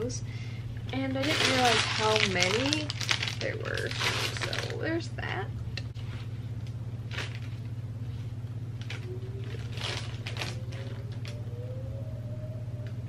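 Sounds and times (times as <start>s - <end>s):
steady low hum: 0.0s - 13.0s
plastic packaging rustling: 1.1s - 4.9s, 7.1s - 7.7s, 8.8s - 11.4s
warning siren rising tone: 8.8s - 13.0s.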